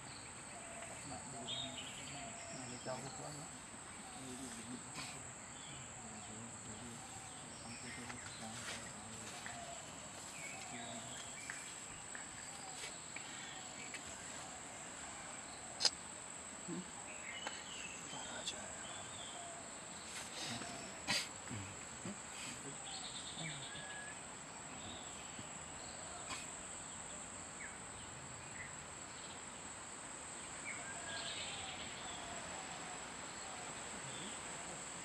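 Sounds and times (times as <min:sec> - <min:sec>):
crickets droning: 0:00.0 - 0:35.0.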